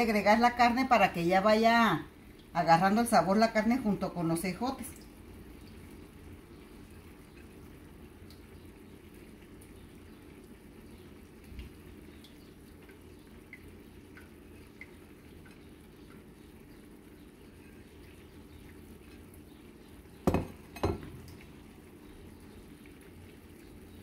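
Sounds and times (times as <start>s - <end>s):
low steady hum: 0.0s - 24.0s
sauce bubbling in a skillet: 0.0s - 24.0s.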